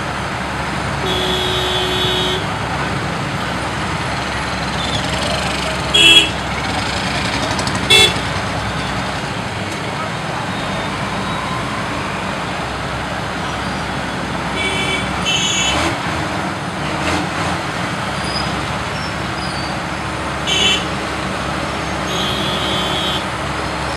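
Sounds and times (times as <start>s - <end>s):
motorcycle and truck engines running: 0.0s - 23.9s
short vehicle horn toots: 1.0s - 2.5s.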